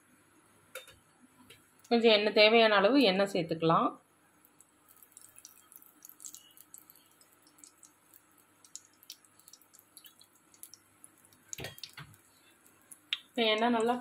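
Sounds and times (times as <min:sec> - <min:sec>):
cooking oil crackling: 0:01.5 - 0:02.1, 0:04.3 - 0:14.0.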